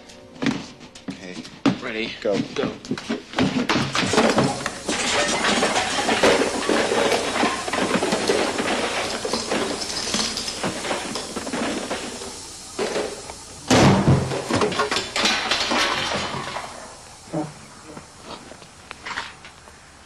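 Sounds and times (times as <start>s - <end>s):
knocking and clattering impacts: 2.4s - 17.0s
heavy thump: 5.8s - 15.5s.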